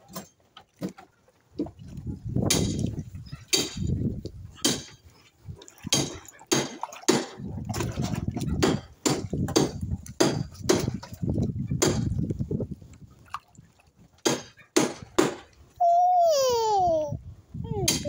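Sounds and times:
wind on microphone: 1.6 - 6.3, 7.4 - 14.1, 15.8 - 18.0
fish splashing at water surface: 4.9 - 9.7.

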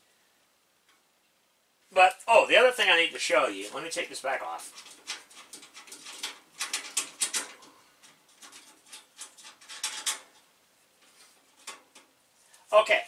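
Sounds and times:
sheet metal clicks and rattles: 4.7 - 12.2.

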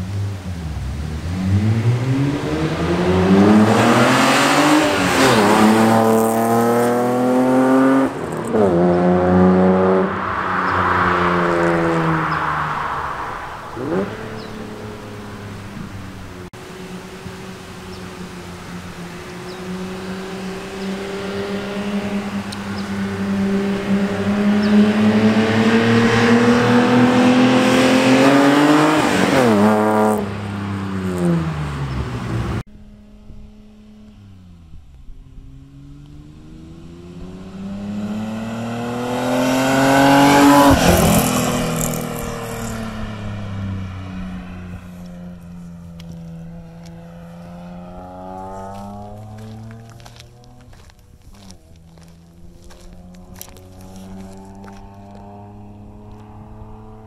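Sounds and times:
car engine passing by: 0.0 - 32.7, 35.4 - 57.0.

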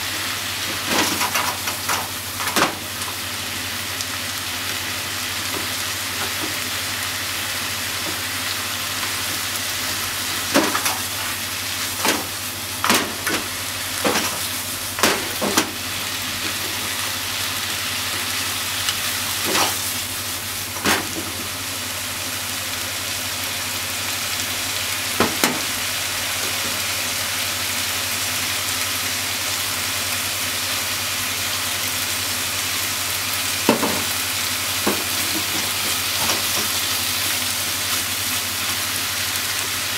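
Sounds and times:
stir-fry sizzling in a pan: 0.0 - 39.9.

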